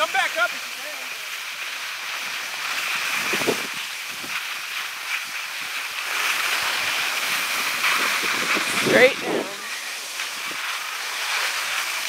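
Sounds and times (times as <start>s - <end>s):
skis hissing on snow: 0.0s - 12.0s
wind on microphone: 3.0s - 4.4s, 6.8s - 10.8s.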